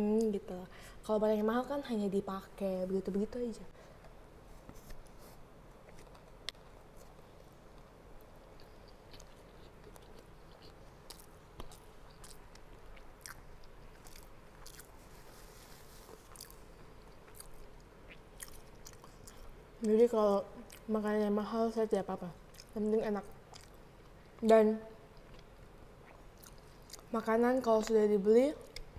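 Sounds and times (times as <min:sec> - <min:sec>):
person chewing food: 0:05.8 - 0:19.6, 0:22.5 - 0:22.8, 0:23.4 - 0:24.4, 0:25.1 - 0:27.2.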